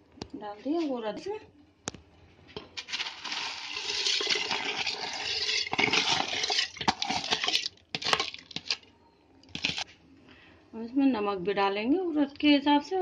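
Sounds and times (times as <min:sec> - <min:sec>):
water and beans splashing into pot: 0:02.7 - 0:08.8.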